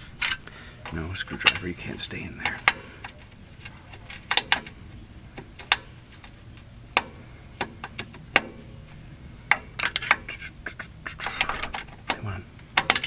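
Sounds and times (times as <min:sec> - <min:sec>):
screwdriver and bolt clicking on metal: 0:02.4 - 0:04.8, 0:11.2 - 0:13.0.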